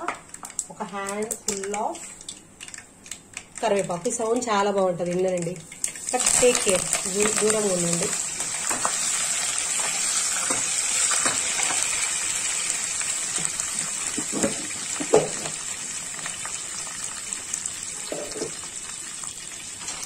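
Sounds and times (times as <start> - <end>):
leaves sizzling in hot oil: 5.4 - 20.0.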